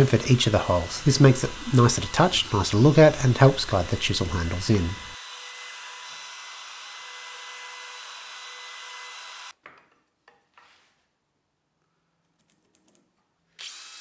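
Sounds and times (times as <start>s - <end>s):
router whining: 0.0s - 9.5s, 13.6s - 14.0s.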